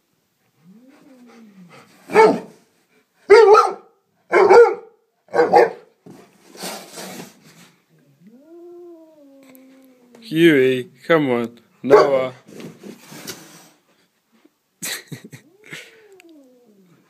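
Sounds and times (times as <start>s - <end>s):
dog play barks: 2.1s - 2.5s, 3.3s - 5.8s, 11.9s - 12.2s.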